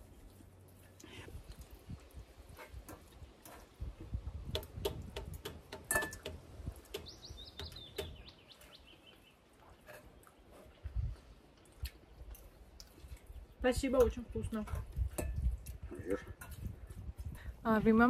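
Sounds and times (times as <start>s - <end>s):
songbird chirping: 6.6s - 10.8s.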